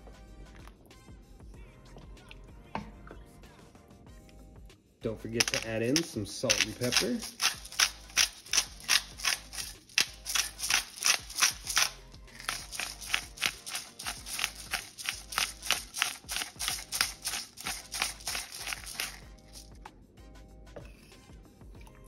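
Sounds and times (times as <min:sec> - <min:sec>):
spice grinder crunching: 0:05.4 - 0:19.8.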